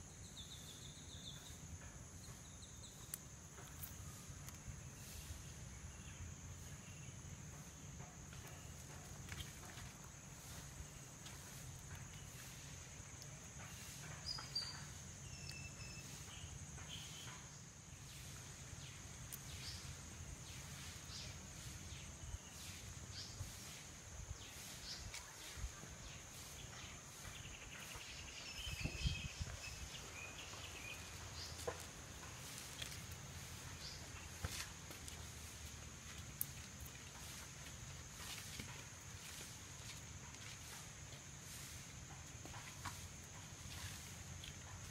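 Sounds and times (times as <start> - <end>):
insect drone: 0.0 - 44.9
bird chirps: 13.7 - 17.6
clicks and rustles of sticks: 31.2 - 40.9.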